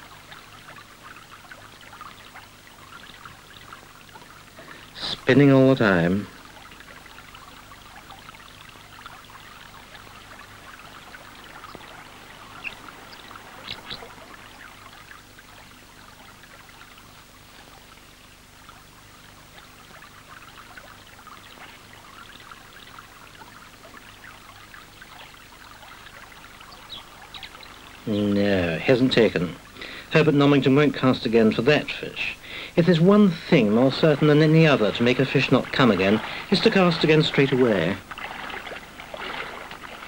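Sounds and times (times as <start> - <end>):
faint low hum: 0.0 - 40.0
river water babbling: 0.0 - 40.0
small ticks: 11.1 - 14.1.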